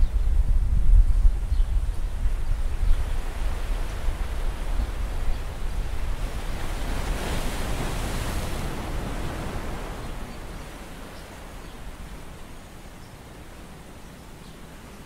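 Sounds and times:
wind rumbling on microphone: 0.0 - 15.0
water splashing and streaming: 3.4 - 13.0.

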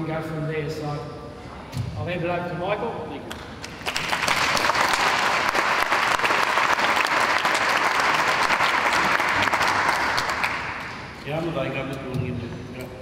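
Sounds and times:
audience applauding: 3.6 - 11.1.

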